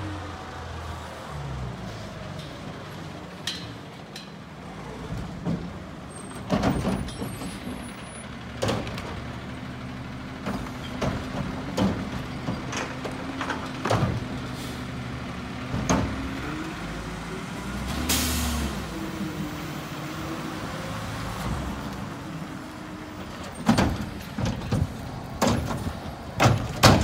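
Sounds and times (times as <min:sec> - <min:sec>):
garbage truck engine hum: 0:00.0 - 0:27.0
metal clunks and bangs: 0:05.1 - 0:07.9, 0:10.4 - 0:14.5, 0:15.6 - 0:16.4, 0:23.2 - 0:27.0.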